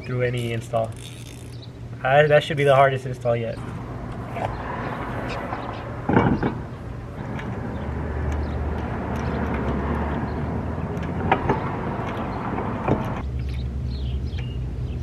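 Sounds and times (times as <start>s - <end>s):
low vehicle rumble: 3.5s - 15.0s
lug nuts clicking: 5.3s - 13.6s
wheel knocking onto hub: 6.0s - 13.2s.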